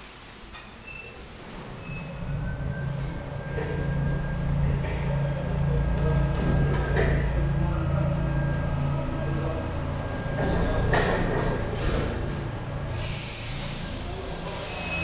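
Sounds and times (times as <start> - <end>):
air brakes hissing: 0.0 - 1.6, 11.8 - 15.0
train steady low hum: 1.3 - 15.0.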